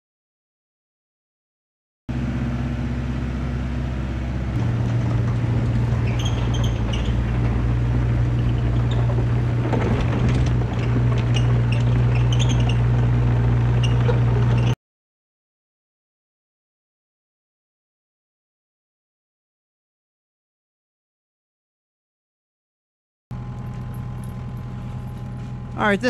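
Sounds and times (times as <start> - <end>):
excavator diesel engine running: 2.1 - 14.8, 23.4 - 26.0
track squeaks and clicks: 4.5 - 14.8.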